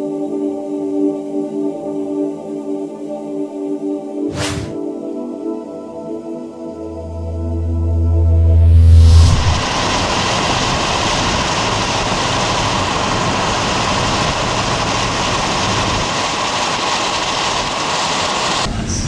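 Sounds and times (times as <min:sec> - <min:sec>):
rushing wind: 0:04.3 - 0:04.8, 0:08.2 - 0:18.7
vehicle road noise: 0:07.0 - 0:14.4.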